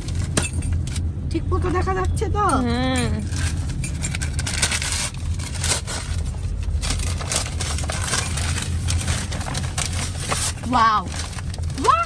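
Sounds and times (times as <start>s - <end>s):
paper gift bag rustling: 3.2s - 12.0s.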